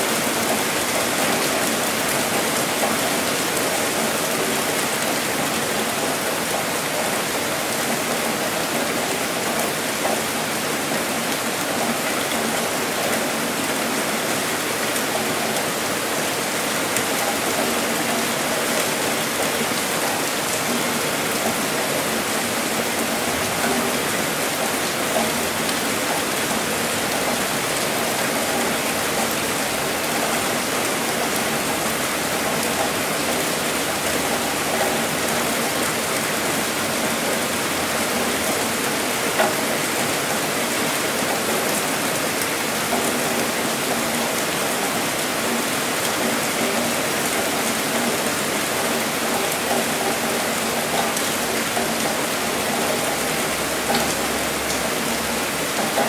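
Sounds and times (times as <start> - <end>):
heavy rain falling: 0.0 - 56.0.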